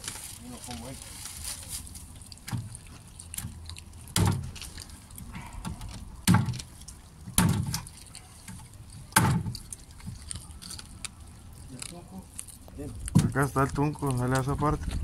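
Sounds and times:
machete chopping on wooden board: 4.1 - 4.5, 5.4 - 6.6, 7.3 - 7.8, 9.2 - 9.5.

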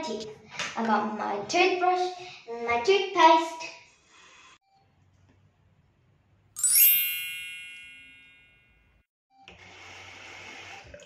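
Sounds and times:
sparkling chime: 6.6 - 8.6.

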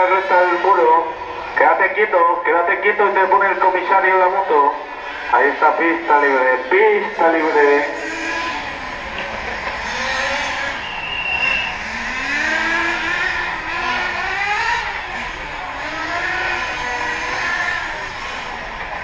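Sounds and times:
rc motorcycle motors whining: 7.3 - 19.0.

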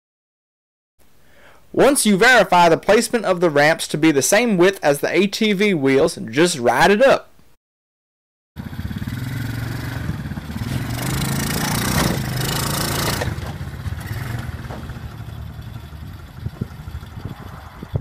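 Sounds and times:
atv engine running: 8.6 - 18.0.

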